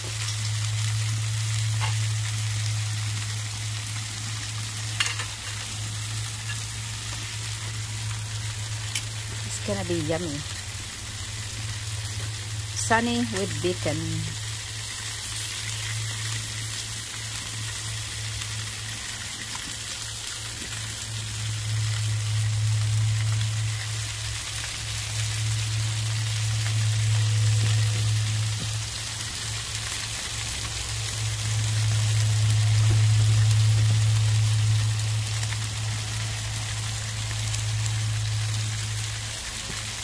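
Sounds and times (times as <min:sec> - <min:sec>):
fish sizzling on a grill: 0:00.0 - 0:40.0
low hum: 0:00.0 - 0:40.0.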